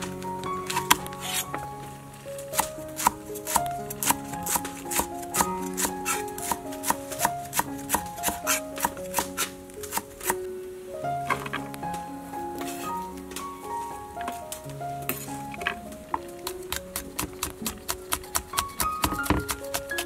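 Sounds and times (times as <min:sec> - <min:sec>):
background music: 0:00.0 - 0:20.0
cleaver chopping on wooden board: 0:16.7 - 0:20.0.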